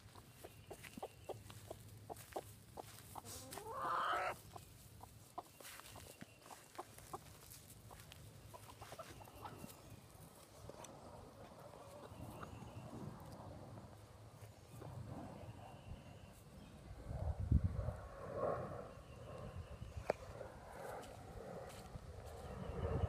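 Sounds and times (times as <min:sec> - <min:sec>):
hen clucking: 0:00.0 - 0:10.0, 0:11.4 - 0:12.8.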